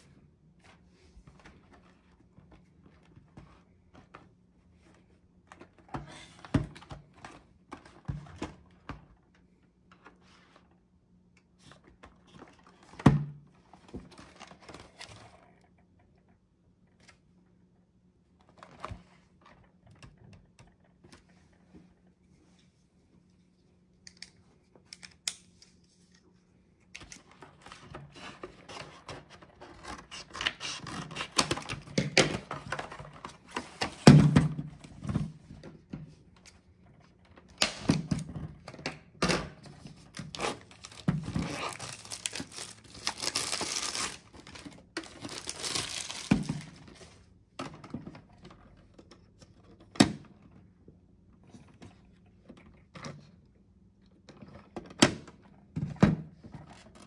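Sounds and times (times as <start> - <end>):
knocks of handled packaging: 40.1 - 46.9
plastic wrap crinkling and tearing: 40.2 - 46.8.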